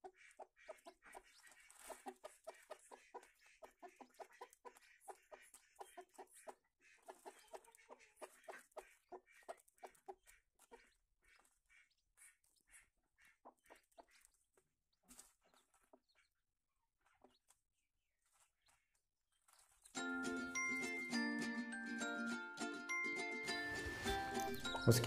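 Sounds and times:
hen clucking: 0.0s - 14.4s.

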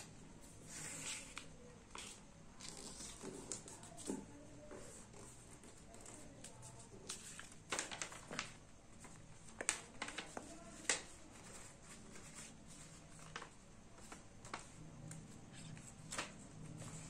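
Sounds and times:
paper rustling and crackling: 5.2s - 17.0s.

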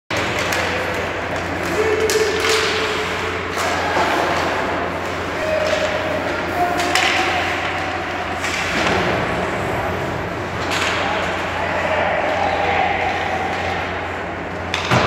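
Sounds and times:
sharp hockey stick clacks: 0.2s - 4.0s, 6.8s - 8.9s
people shouting: 0.5s - 8.9s, 9.5s - 14.0s.

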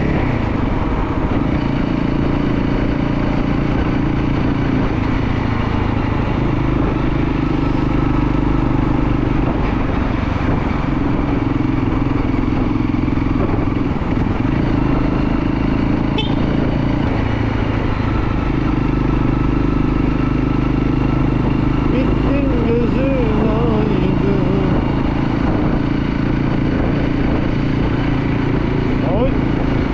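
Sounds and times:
motorcycle engine running: 0.0s - 29.9s.

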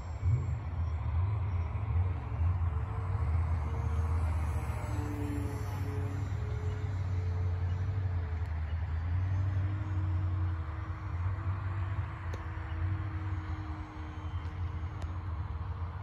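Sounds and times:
wind rumble on microphone: 0.0s - 16.0s
model plane motor humming: 2.1s - 8.5s.

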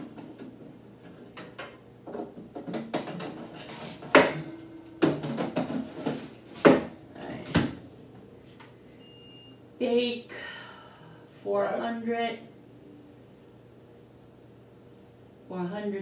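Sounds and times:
kitchen knocks and clatter: 0.0s - 7.8s.

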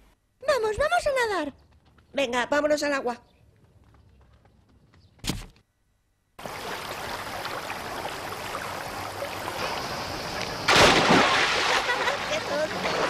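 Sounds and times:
flowing water: 6.4s - 13.0s.

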